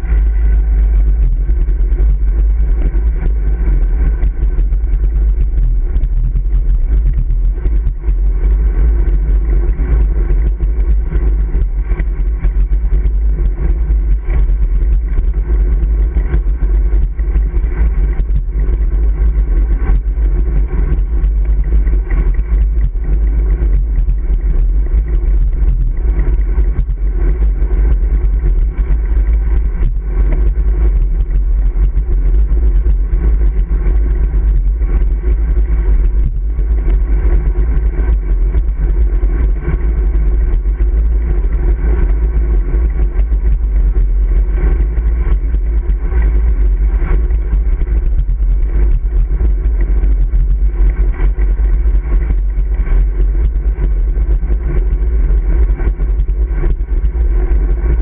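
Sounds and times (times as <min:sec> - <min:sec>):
bike tyre road noise: 0:00.0 - 0:58.0
wind rumble: 0:00.0 - 0:58.0.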